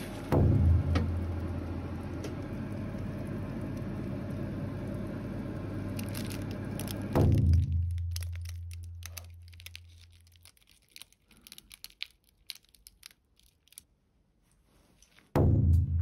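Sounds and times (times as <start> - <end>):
oven fan hiss: 0.0 - 7.4
oven electrical hum: 0.0 - 11.8.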